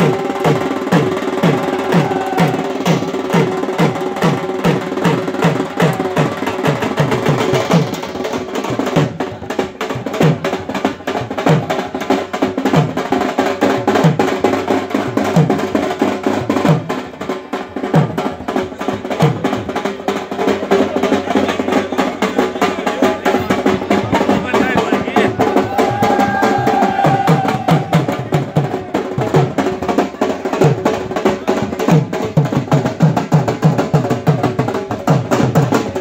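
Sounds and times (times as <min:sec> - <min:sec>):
busy background noise: 0:00.0 - 0:36.0
deep drum strokes: 0:00.0 - 0:36.0
drums in fast rolling rhythm: 0:00.0 - 0:36.0.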